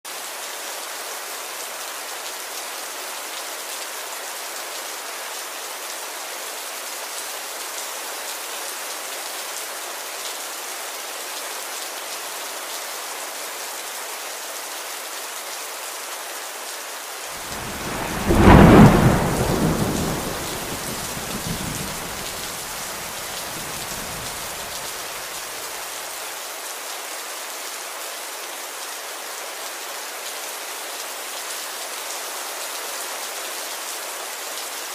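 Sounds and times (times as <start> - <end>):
steady rain falling: 0.1 - 34.9
thunder rumbling: 17.4 - 25.0.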